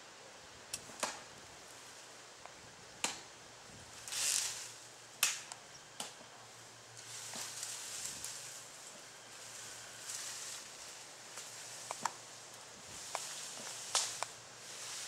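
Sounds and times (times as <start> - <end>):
skin ripping hiss: 4.0 - 5.4.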